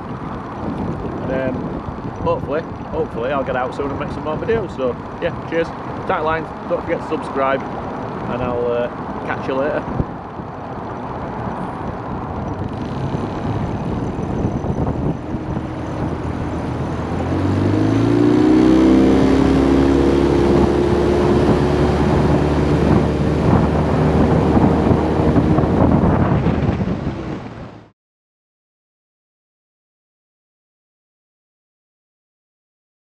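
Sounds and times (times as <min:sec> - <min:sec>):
outboard motor running: 0:00.0 - 0:27.7.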